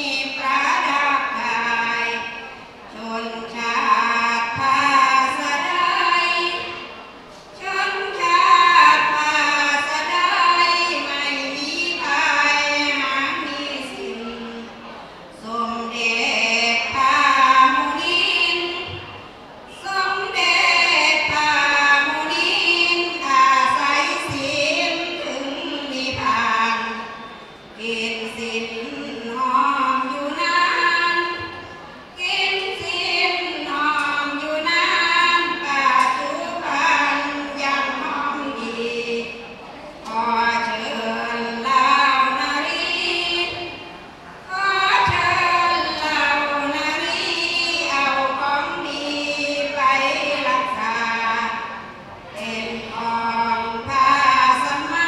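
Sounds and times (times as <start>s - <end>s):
women chanting unaccompanied: 19.7s - 27.1s, 27.8s - 31.6s, 32.2s - 43.8s, 44.5s - 55.0s.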